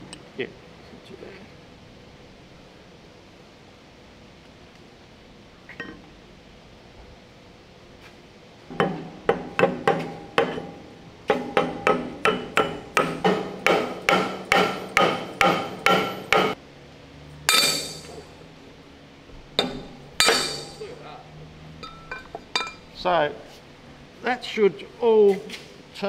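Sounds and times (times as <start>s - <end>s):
hammer striking steel: 8.7s - 16.6s, 17.4s - 18.4s, 19.6s - 20.9s
metal clatter: 17.5s - 18.3s, 19.6s - 20.9s.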